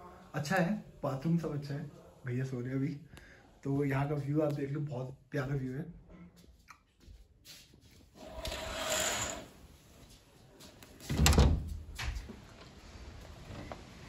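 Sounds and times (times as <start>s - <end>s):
curtain scraping along rail: 8.1s - 9.8s
wooden door thump: 11.1s - 12.3s.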